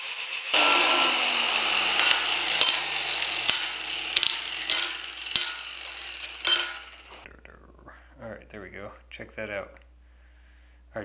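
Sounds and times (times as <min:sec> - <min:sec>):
angle grinder spinning down: 0:00.0 - 0:07.2
steel bars clinking on steel table: 0:02.0 - 0:02.8, 0:03.5 - 0:07.0.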